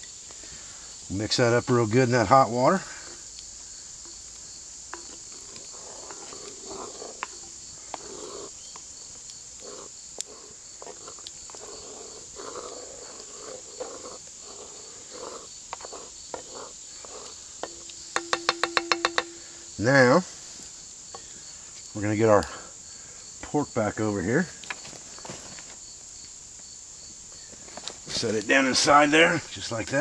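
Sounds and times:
insects chirping: 0:00.0 - 0:30.0
wooden spoon stirring in pot: 0:02.8 - 0:21.3
spoon knocking against pot: 0:17.6 - 0:19.6.

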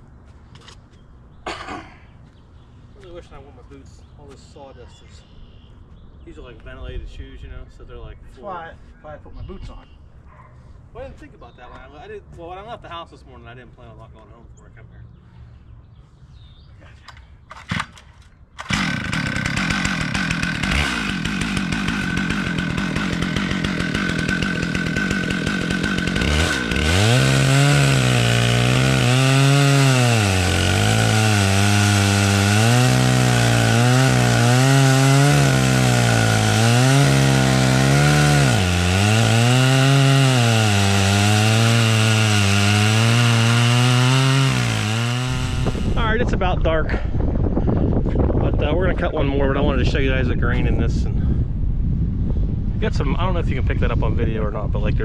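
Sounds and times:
chainsaw ripping a log: 0:17.5 - 0:46.0.

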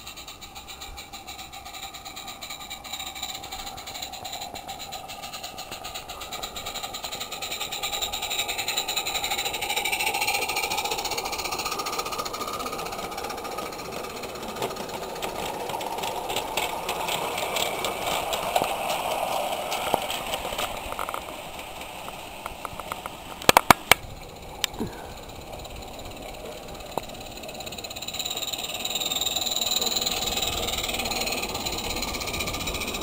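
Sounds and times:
steam locomotive chuffing: 0:00.0 - 0:33.0
wagons rattling on track: 0:00.0 - 0:33.0
sharp clicks: 0:22.0 - 0:24.8.

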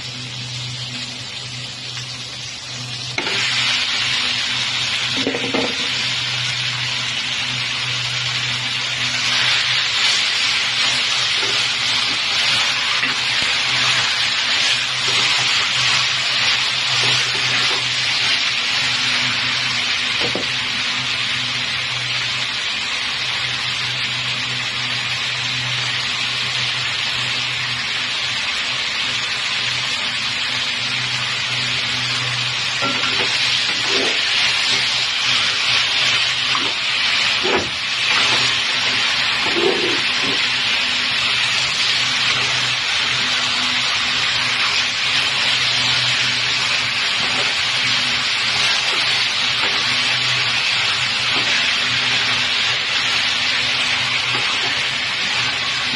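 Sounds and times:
chicken sizzling in a pan: 0:00.0 - 0:55.9
spatula scraping a pan: 0:08.9 - 0:18.5, 0:32.8 - 0:43.3.

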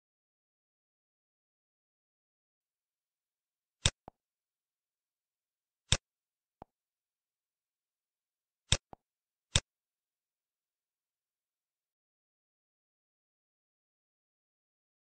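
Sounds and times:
mouse button clicks: 0:08.7 - 0:09.7.

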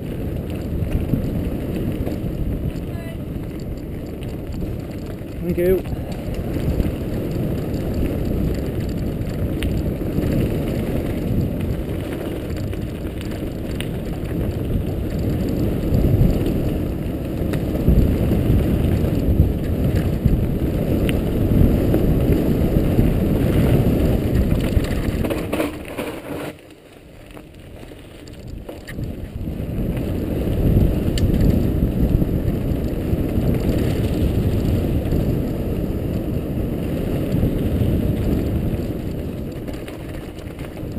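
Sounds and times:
tyres rumbling on gravel: 0:00.0 - 0:40.9
bike parts rattling: 0:24.2 - 0:26.5.

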